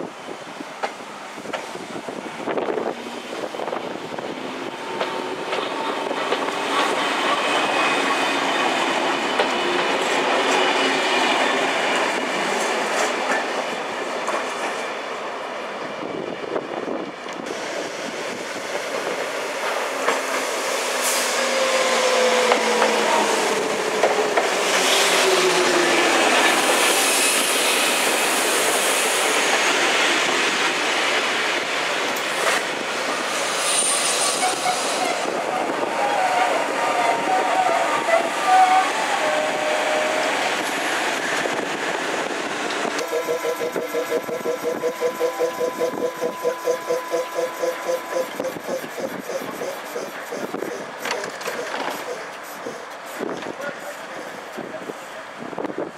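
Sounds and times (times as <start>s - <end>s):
electric train passing: 0.0s - 55.9s
train wheel squeal: 5.5s - 12.2s, 21.0s - 30.1s, 33.3s - 40.4s, 43.0s - 53.5s
wheels clicking over rail joints: 23.9s - 25.2s
train whine falling in pitch: 42.8s - 49.2s.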